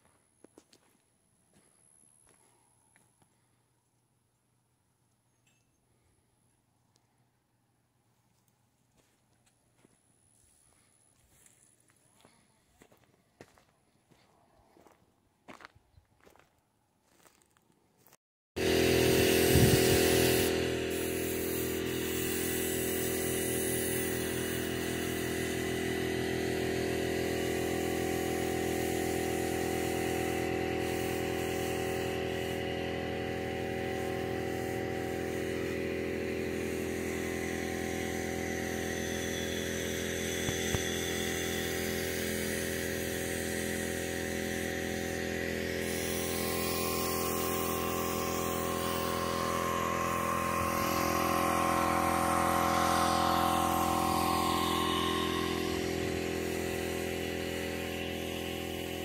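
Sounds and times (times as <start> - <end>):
air compressor running: 18.6 - 59.0
spray gun hissing: 18.6 - 59.0.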